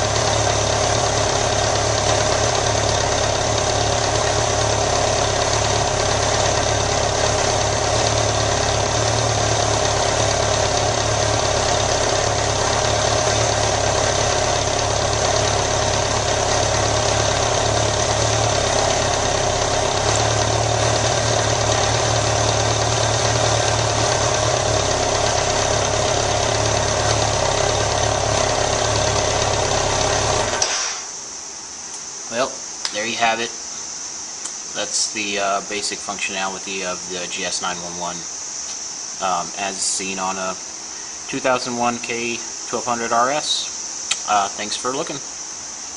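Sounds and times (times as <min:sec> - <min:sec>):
motorcycle engine idling: 0:00.0 - 0:30.6.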